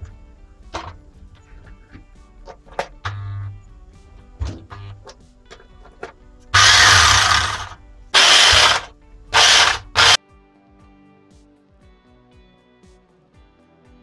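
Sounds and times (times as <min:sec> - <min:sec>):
hammer drill running: 0:06.6 - 0:10.2.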